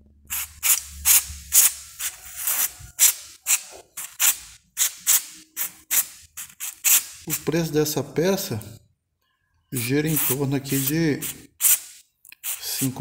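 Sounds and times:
aerosol spray hissing bursts: 0.3s - 7.4s, 10.2s - 13.0s.

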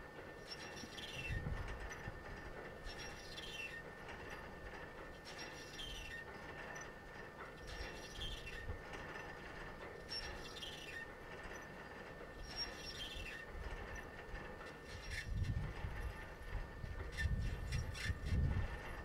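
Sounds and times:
wind noise on microphone: 1.2s - 2.5s, 13.5s - 19.0s.

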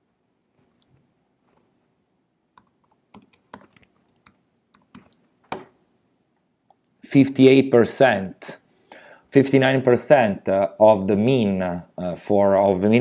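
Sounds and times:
keyboard typing: 2.5s - 5.8s.

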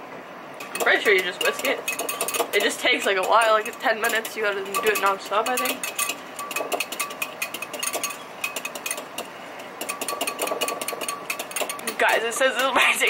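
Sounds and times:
whisk clinking against bowl: 0.6s - 12.8s.

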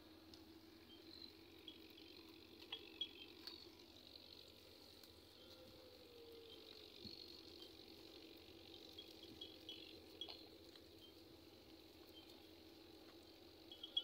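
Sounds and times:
soft high chirps: 2.6s - 3.7s, 8.9s - 11.3s, 13.6s - 14.0s.

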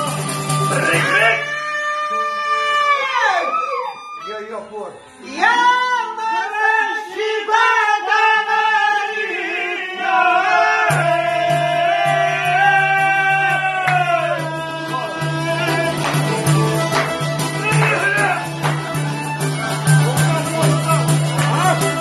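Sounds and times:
man singing: 5.2s - 16.8s
frame drum: 10.9s - 22.0s
lutes: 10.9s - 22.0s
accordion: 14.4s - 22.0s
violin: 14.5s - 22.0s.

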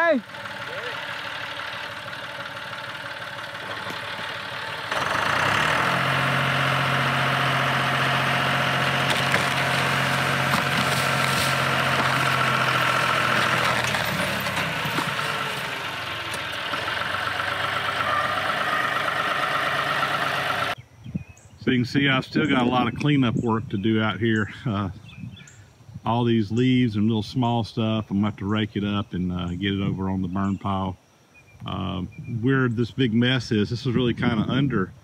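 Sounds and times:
tractor diesel engine: 0.0s - 20.8s
tree cracking and crashing: 7.4s - 16.7s.

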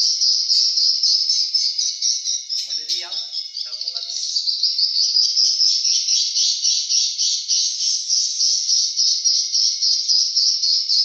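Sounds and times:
swiftlets twittering: 2.5s - 5.0s.

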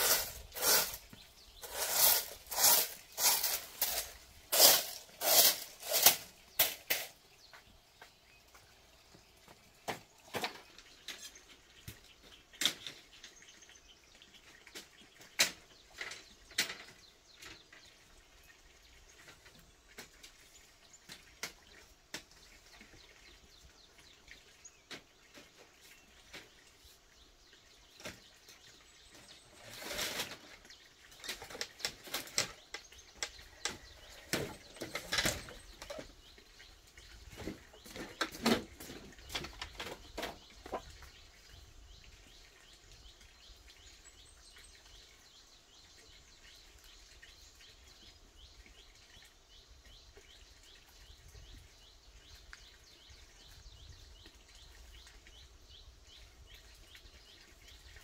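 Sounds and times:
rustling: 0.0s - 7.2s, 29.2s - 32.6s.

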